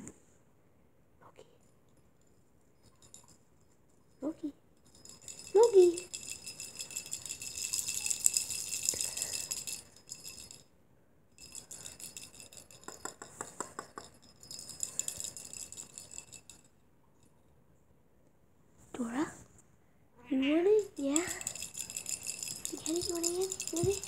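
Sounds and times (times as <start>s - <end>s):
plastic jingle ball rattling: 2.8s - 3.5s, 4.1s - 10.7s, 11.4s - 16.8s, 20.8s - 24.0s.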